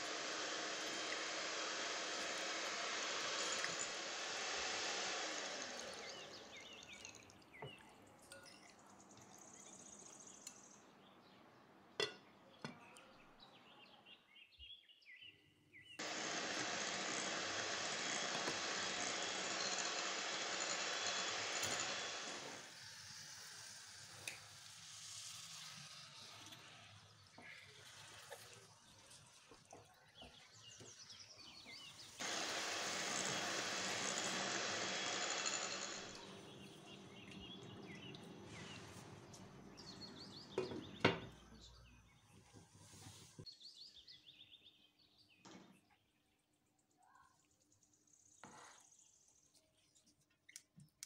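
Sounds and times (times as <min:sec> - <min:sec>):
electric hand mixer whisking: 0:00.0 - 0:06.9, 0:16.0 - 0:26.5, 0:32.0 - 0:38.2.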